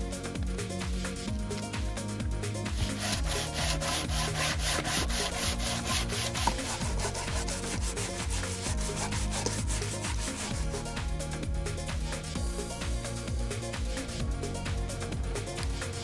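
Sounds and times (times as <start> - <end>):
sandpaper rubbing on wood: 2.8 - 11.1.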